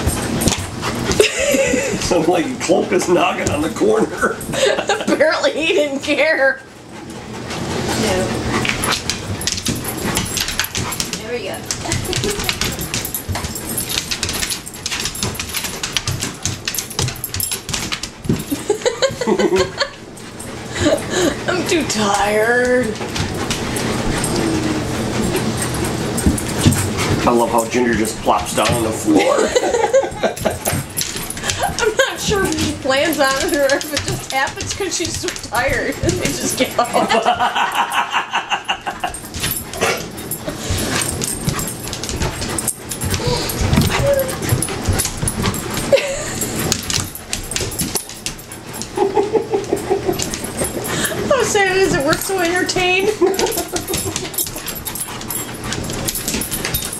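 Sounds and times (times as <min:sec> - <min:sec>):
paws thumping: 0:00.0 - 0:56.9
dog claws scratching wood floor: 0:07.0 - 0:19.8, 0:20.5 - 0:37.3, 0:38.9 - 0:56.9
dog whining: 0:23.0 - 0:27.3, 0:39.0 - 0:47.8.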